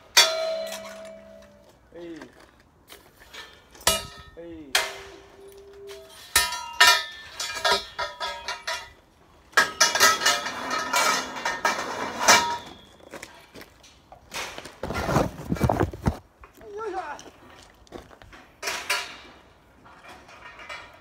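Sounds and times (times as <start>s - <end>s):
metal pipes clanging: 0.0s - 1.8s, 3.2s - 14.0s, 18.6s - 21.0s.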